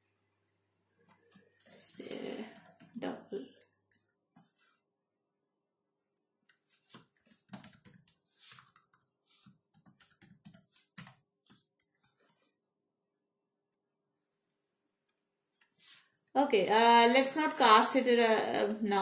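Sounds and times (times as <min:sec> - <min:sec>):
faint steady hum: 0:00.0 - 0:19.0
computer keyboard typing: 0:01.2 - 0:04.5, 0:06.5 - 0:12.2.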